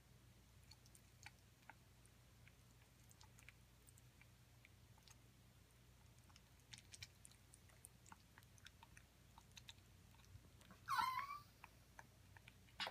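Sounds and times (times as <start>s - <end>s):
parrot beak crunching fruit: 0.6s - 12.9s
parrot squeak: 10.8s - 11.5s.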